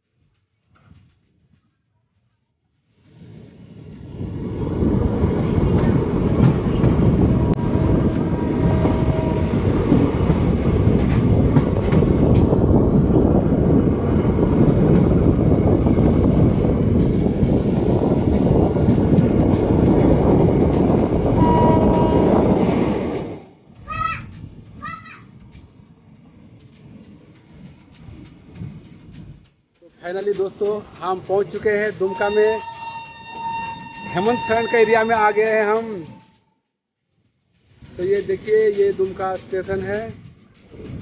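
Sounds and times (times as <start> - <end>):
train wheels rumbling on rails: 0.0 - 41.0
wheels clicking over rail joints: 23.0 - 41.0.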